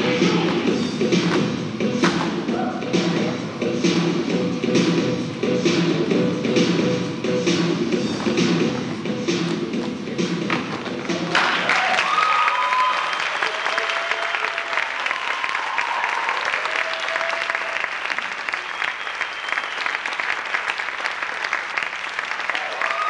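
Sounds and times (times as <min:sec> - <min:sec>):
audience clapping: 0:11.3 - 0:23.0
cheers and whoops: 0:11.7 - 0:18.0, 0:22.5 - 0:23.0.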